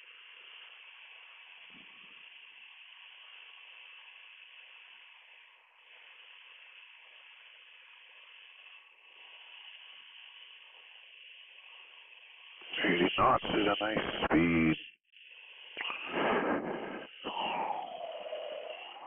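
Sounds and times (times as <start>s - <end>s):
faint intercom hiss: 12.6s - 14.8s.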